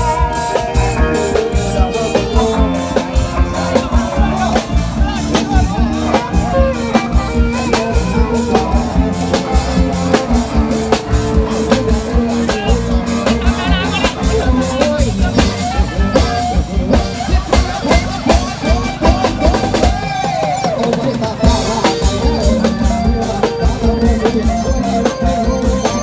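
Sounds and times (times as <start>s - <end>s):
brass band horns: 0.0s - 20.1s
steady drum beat: 0.0s - 26.0s.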